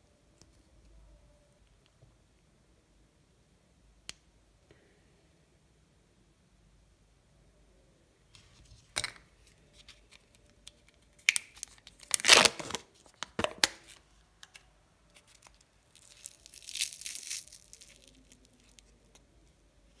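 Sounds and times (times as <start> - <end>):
lid tearing and crinkling: 11.2 - 14.0, 15.2 - 18.9.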